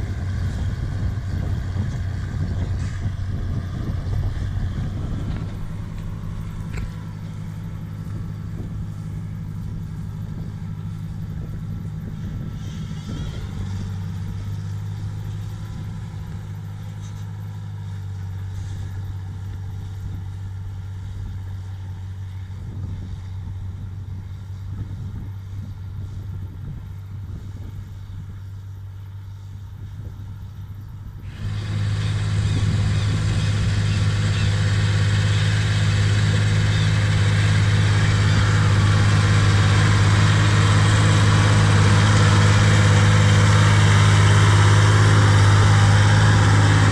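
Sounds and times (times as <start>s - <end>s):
tractor diesel engine under load: 0.0s - 46.9s
hiss: 31.2s - 46.8s.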